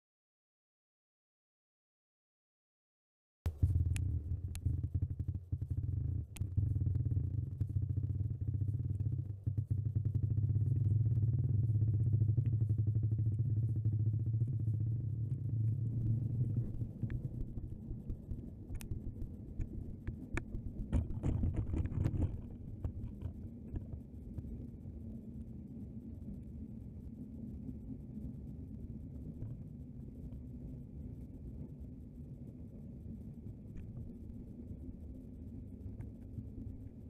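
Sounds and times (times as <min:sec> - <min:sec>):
muffled low rumble: 0:03.5 - 0:37.0
rustling noise: 0:15.4 - 0:24.7.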